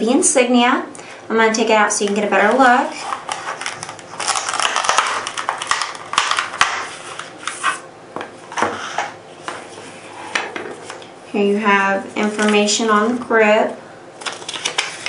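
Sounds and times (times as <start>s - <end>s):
plastic rustling: 2.0s - 7.8s, 12.0s - 13.2s, 14.2s - 15.0s
plastic packaging crinkling: 2.1s - 7.8s, 14.2s - 15.0s.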